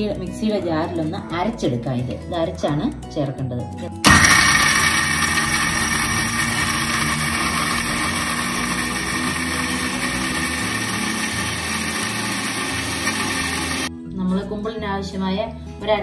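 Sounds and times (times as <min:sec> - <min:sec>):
electric grinder running: 0:04.1 - 0:13.9.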